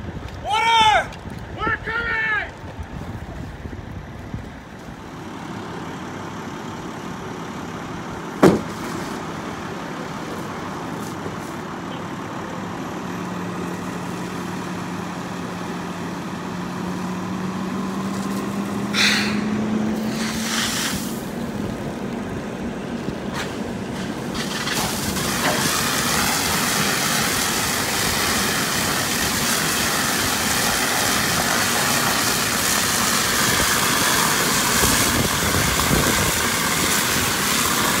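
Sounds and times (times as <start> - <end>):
fire engine pump running: 2.5 - 38.0
water rushing from hose nozzle: 18.0 - 21.4, 24.0 - 38.0
short hisses: 18.9 - 21.2.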